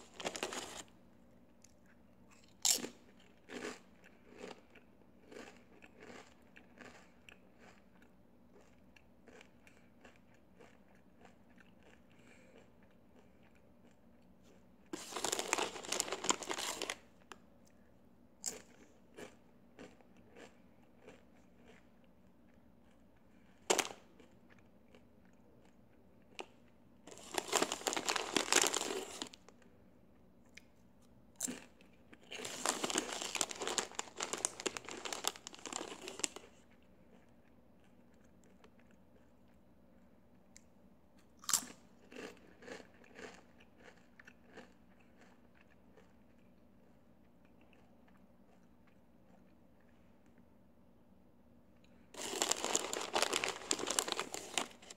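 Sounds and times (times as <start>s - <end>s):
chip bag crinkling: 0.0s - 0.9s, 15.0s - 17.1s, 23.7s - 24.0s, 27.1s - 29.5s, 32.3s - 36.5s, 52.2s - 54.9s
chewing crunchy chips: 0.0s - 17.8s, 18.4s - 30.8s, 31.4s - 50.5s, 51.8s - 54.9s.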